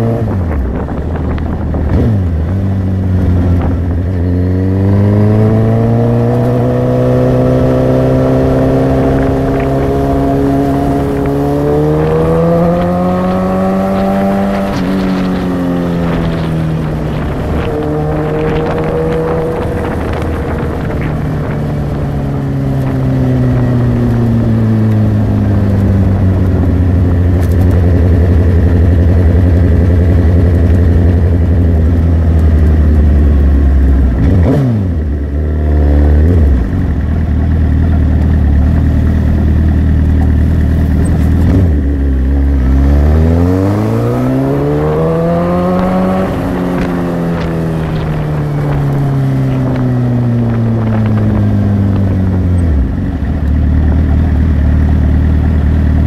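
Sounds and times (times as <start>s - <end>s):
motorcycle engine: 0.0s - 56.0s.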